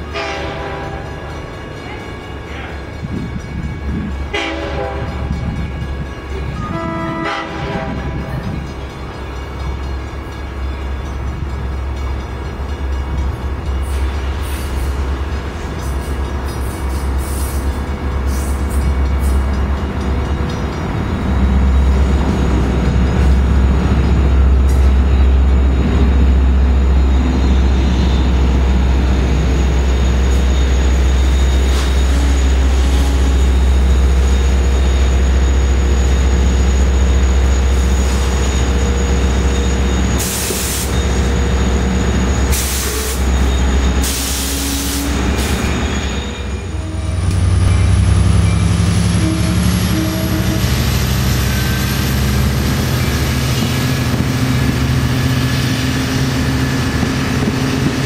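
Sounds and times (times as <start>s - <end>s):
diesel train engine drone: 0.0s - 58.0s
train wheel rumble: 0.0s - 58.0s
thin squeal: 29.3s - 52.5s.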